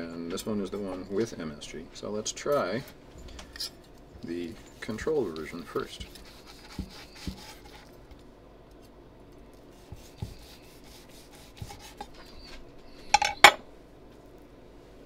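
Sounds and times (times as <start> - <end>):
knife sawing through steak: 6.0 - 7.9, 9.8 - 12.5.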